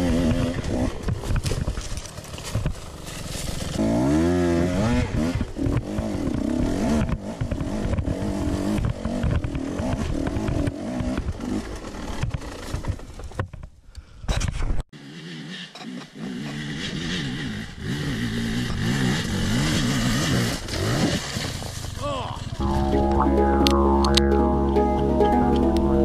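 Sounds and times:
dirt bike engine revving: 3.6 - 12.8, 15.0 - 21.2.

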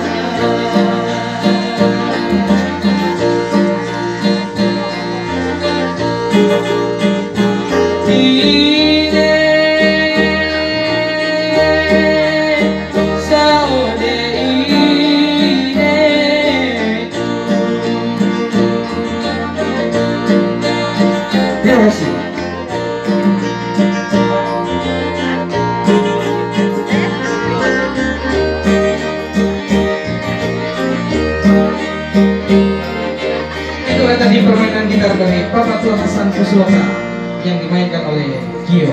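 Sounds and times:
man singing into microphone: 0.0 - 3.9, 7.7 - 18.2, 33.7 - 37.0
bass line: 0.0 - 38.9
keyboard plucked-guitar tune: 0.0 - 38.9.

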